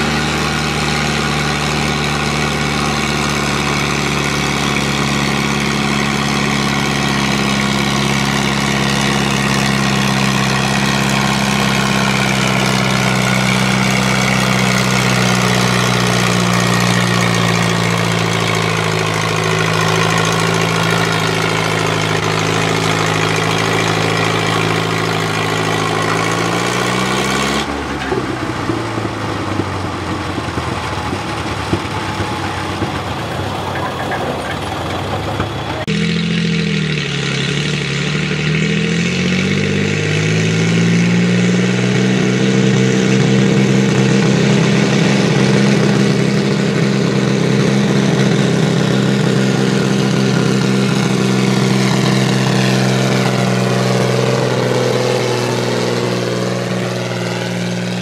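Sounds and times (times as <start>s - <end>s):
tractor engine running hard: 0.0s - 58.0s
sharp engine knocks: 1.3s - 36.0s.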